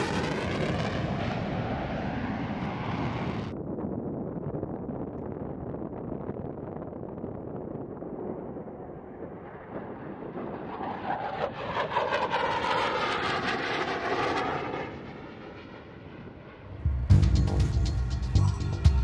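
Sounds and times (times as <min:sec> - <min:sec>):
jet plane flying past: 0:00.0 - 0:03.6, 0:08.6 - 0:17.1.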